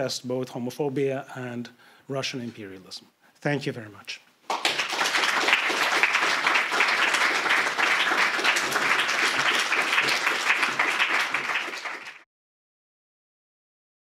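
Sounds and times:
audience applauding: 4.5 - 12.3.

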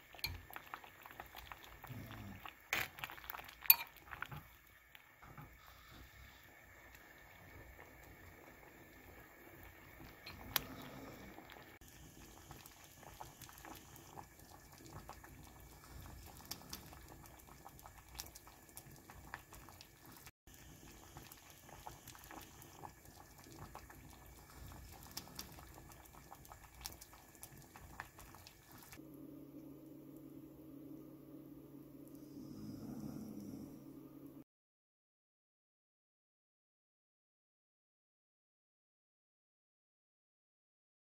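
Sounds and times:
stew bubbling in a pot: 0.0 - 30.4.

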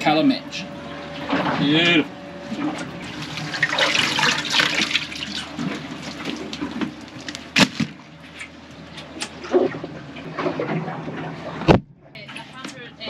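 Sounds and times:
steady low hum: 0.0 - 13.0
water splashing and trickling: 0.2 - 8.6.

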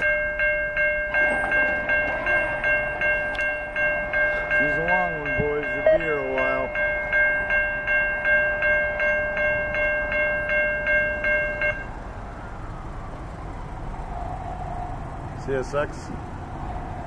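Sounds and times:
railroad crossing bell ringing: 0.0 - 12.8.

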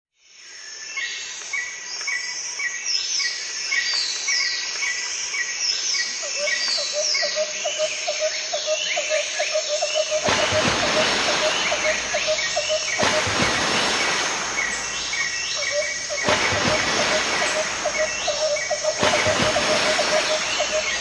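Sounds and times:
high insect hiss: 0.4 - 21.0
bird chirps: 6.3 - 21.0
high falling bird whistles: 10.1 - 21.0
lower repeating bird note: 10.1 - 21.0.

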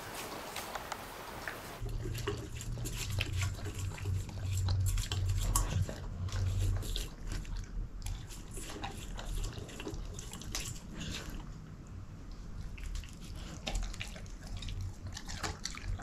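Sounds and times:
dog chewing wet food: 1.4 - 16.0.

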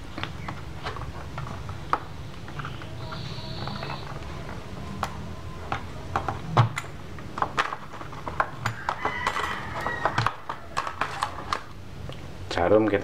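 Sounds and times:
steady low hum: 0.0 - 8.8.

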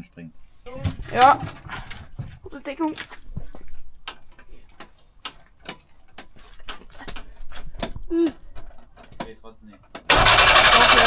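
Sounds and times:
engine cranking by starter: 10.0 - 11.0.

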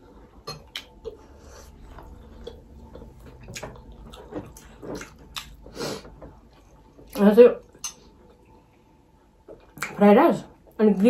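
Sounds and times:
chewing and slurping: 0.0 - 8.7.

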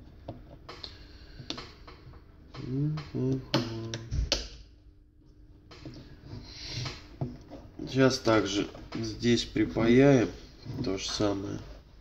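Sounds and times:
person humming: 2.6 - 4.1.

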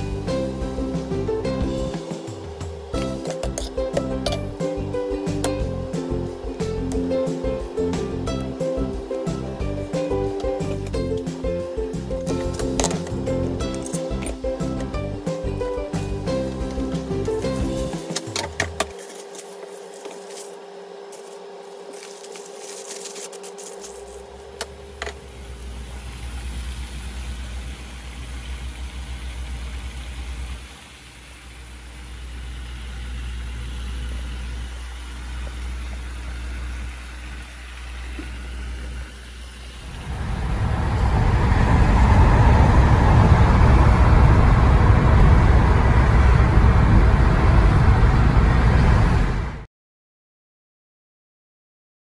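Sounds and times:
road and engine noise at speed: 0.0 - 49.7
car engine hum from cabin: 21.1 - 49.4.

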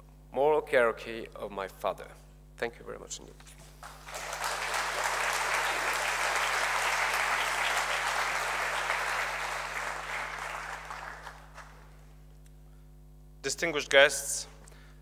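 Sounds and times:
audience applause: 3.8 - 11.9.

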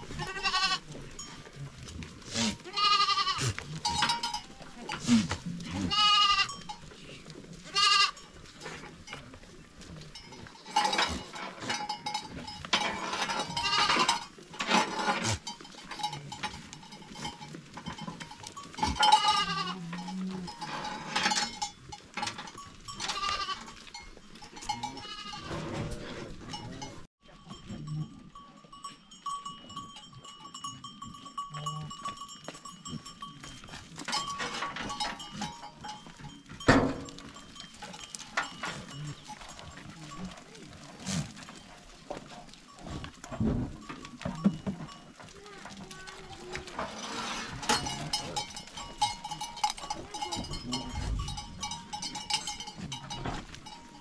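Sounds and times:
goats bleating: 0.0 - 0.9, 1.8 - 8.2, 13.2 - 14.3, 18.8 - 21.4, 22.9 - 23.9, 24.6 - 25.6
thin steady ringing tone: 26.6 - 40.4.

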